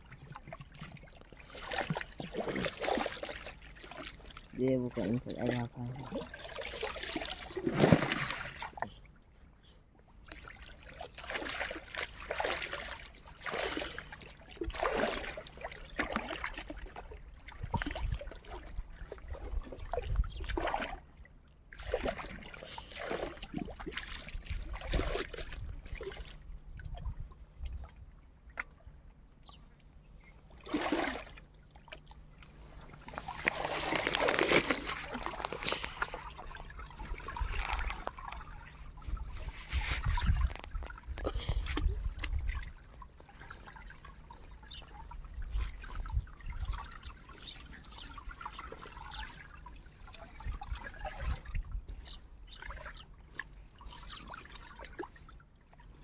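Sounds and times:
wet cloth splashing in water: 0:05.0 - 0:08.7, 0:10.3 - 0:16.9, 0:32.6 - 0:41.4.

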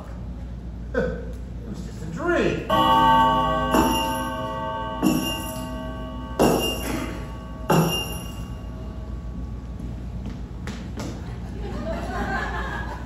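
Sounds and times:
bell tolling: 0:02.7 - 0:10.2.

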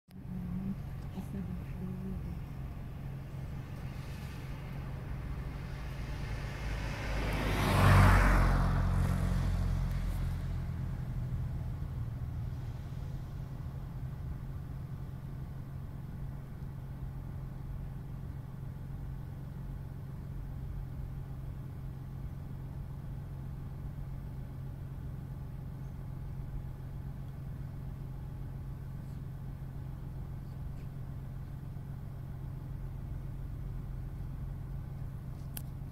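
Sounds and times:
car engine idling: 0:00.1 - 0:35.9
vehicle passing: 0:00.3 - 0:14.4.

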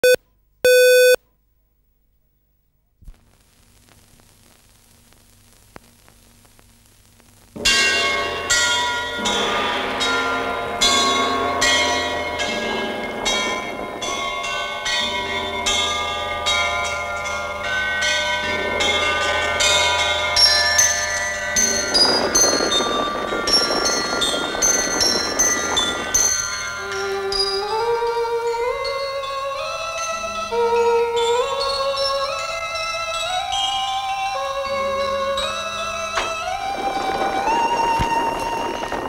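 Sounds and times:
short beep: 0:00.0 - 0:01.2
faint hiss and hum: 0:00.1 - 0:07.7
church bells pealing: 0:07.7 - 0:30.2.

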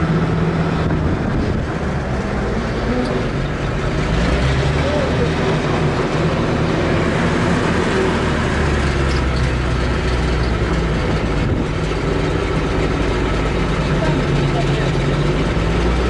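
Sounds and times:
loader engine running: 0:00.0 - 0:16.0.

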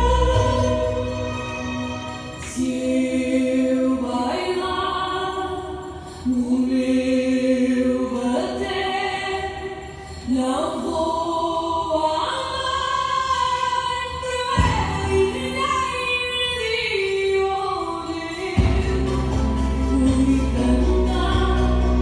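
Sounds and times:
woman singing song: 0:00.0 - 0:01.2, 0:02.3 - 0:22.0.

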